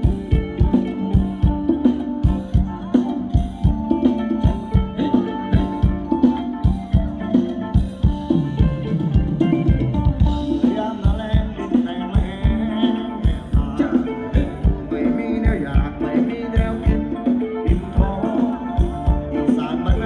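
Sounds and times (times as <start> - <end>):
drum kit steady beat: 0.0 - 20.0
guitar: 0.0 - 20.0
live band playing dance music: 0.0 - 20.0
person singing: 4.4 - 6.2, 10.3 - 20.0.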